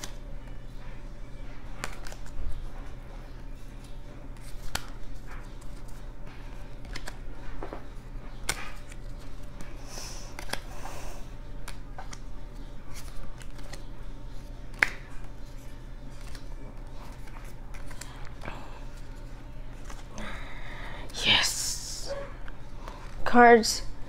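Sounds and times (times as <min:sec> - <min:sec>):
cards slapping on cards: 0:01.8 - 0:02.4, 0:03.8 - 0:07.8, 0:08.4 - 0:10.8, 0:11.6 - 0:15.4, 0:16.1 - 0:18.4.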